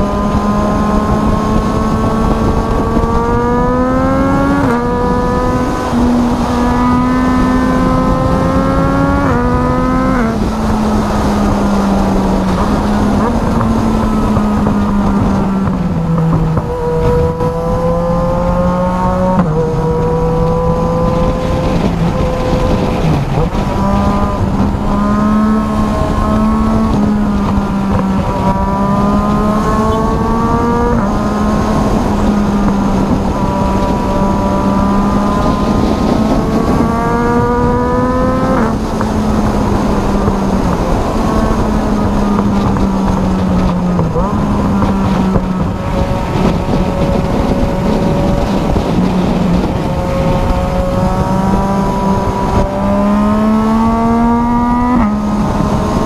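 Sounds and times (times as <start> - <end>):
motorcycle engine accelerating: 0.0 - 56.0
wind and road noise: 0.0 - 56.0.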